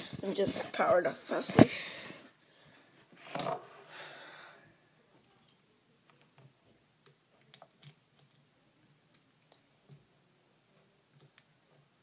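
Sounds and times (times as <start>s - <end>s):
faint clicks and taps: 5.1s - 8.5s, 11.1s - 11.9s.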